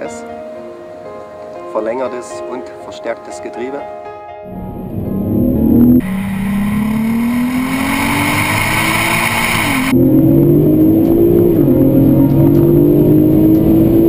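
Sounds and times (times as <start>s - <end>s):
car engine accelerating hard: 4.5s - 14.0s.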